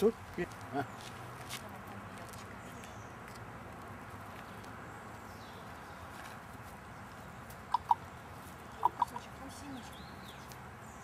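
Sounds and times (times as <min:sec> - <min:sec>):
tongue clicks: 0:07.7 - 0:08.0.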